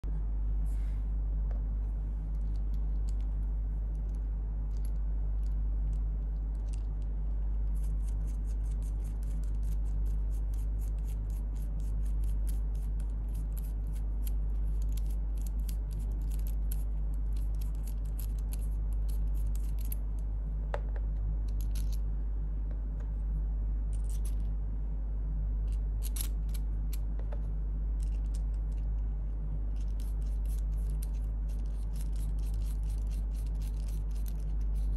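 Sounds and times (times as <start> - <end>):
steady low hum: 0.0 - 34.9
small metal parts clicking: 2.3 - 20.3, 21.5 - 22.0, 25.6 - 27.1, 28.0 - 29.0, 29.7 - 34.9.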